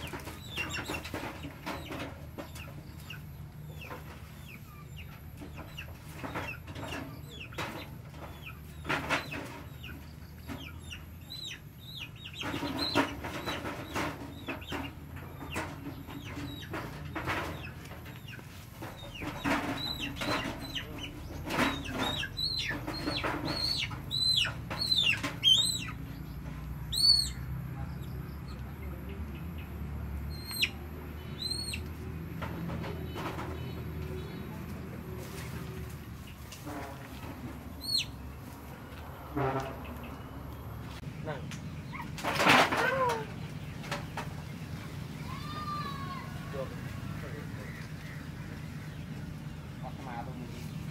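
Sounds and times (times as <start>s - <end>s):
chicken squawking: 19.2s - 26.0s, 26.9s - 27.4s, 31.4s - 31.9s, 37.7s - 38.2s
scuffling in dirt and leaves: 33.2s - 42.1s.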